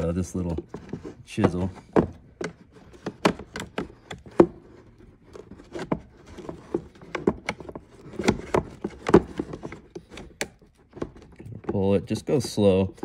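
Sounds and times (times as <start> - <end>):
chisel prying plastic parts: 0.0 - 13.0.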